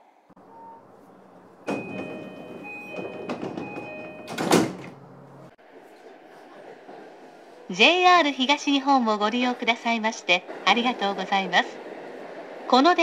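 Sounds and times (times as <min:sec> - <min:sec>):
train doors moving: 0:00.4 - 0:07.7, 0:08.3 - 0:13.0
doors shutting with a thud: 0:01.6 - 0:05.0
two-tone door chime: 0:01.7 - 0:04.6.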